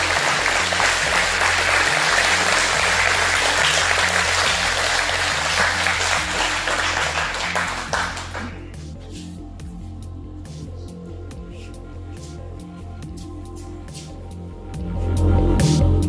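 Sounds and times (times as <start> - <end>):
audience applauding: 0.0 - 8.7.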